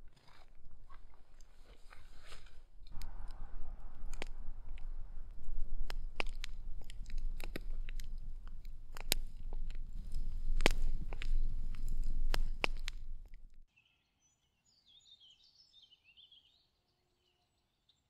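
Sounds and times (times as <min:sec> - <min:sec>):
wood fire crackling: 0:00.0 - 0:13.6.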